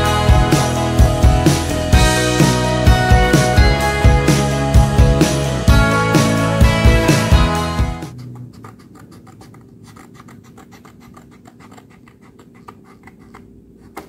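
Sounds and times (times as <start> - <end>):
background music: 0.0 - 8.2
scissors cutting paper: 8.0 - 14.0.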